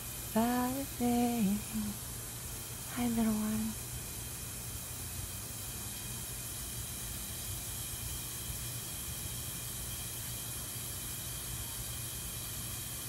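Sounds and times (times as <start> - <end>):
low hum: 0.0 - 4.0.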